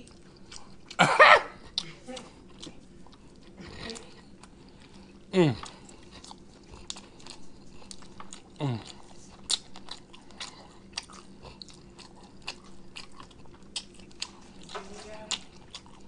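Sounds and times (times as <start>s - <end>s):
man chewing meat: 0.0s - 16.0s
man grunting: 5.3s - 5.7s.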